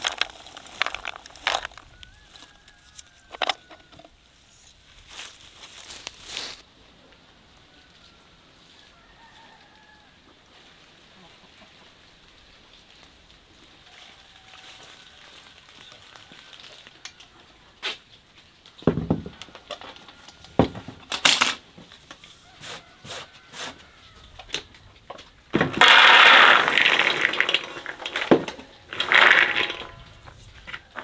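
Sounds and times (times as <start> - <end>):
rose hips clattering into basin: 0.0 - 2.4, 25.5 - 31.0
metal containers knocking on wood: 25.6 - 30.0.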